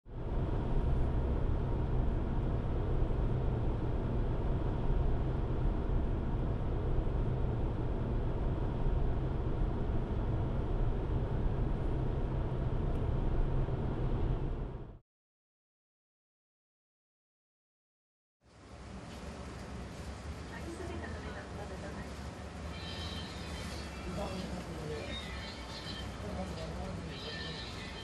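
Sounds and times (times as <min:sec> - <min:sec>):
vehicle road rumble: 0:00.1 - 0:15.0.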